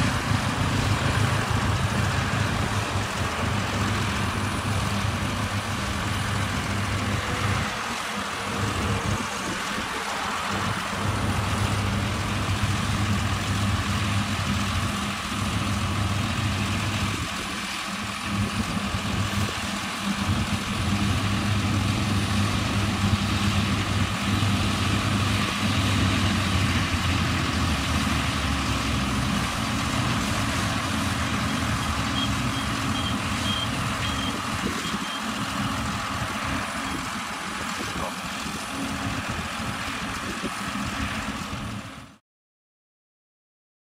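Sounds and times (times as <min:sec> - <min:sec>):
combine harvester engine drone: 0:00.0 - 0:42.2
high beeps: 0:31.4 - 0:35.2.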